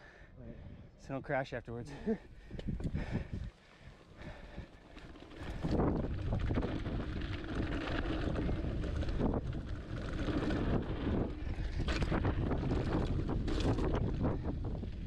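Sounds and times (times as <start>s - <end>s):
tyres rolling over dirt trail: 2.0s - 15.0s
wind buffeting microphone: 2.4s - 4.8s, 5.4s - 15.0s
bike clattering over bumps: 4.2s - 15.0s.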